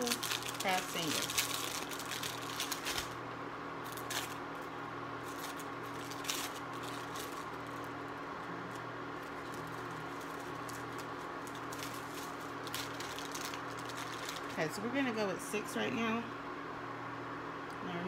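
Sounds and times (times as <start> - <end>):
plastic wrapper crackling: 0.0 - 3.2, 3.8 - 8.1, 8.7 - 14.6
cooktop humming: 0.0 - 18.0.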